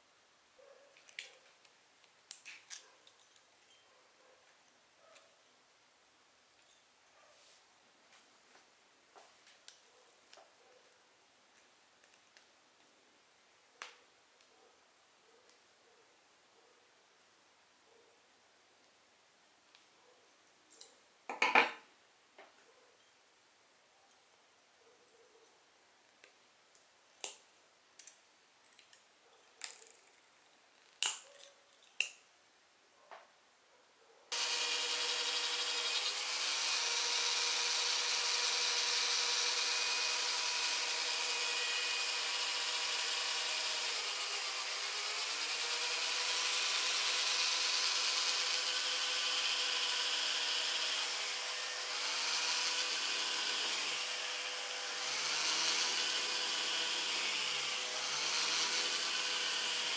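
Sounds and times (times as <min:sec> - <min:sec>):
electric rotary drill whining: 0:34.3 - 0:59.9.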